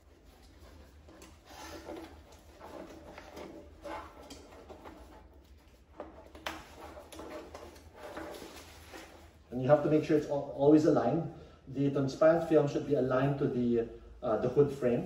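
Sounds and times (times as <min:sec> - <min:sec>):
fabric and plastic film rustling: 0:01.7 - 0:09.6.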